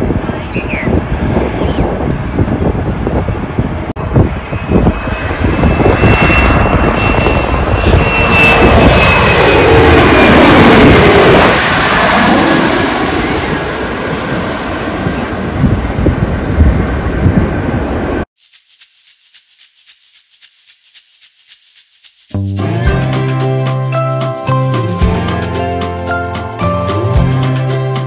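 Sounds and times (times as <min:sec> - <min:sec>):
jet roaring overhead: 0:00.0 - 0:18.3
jet whoosh passing overhead: 0:04.4 - 0:18.3.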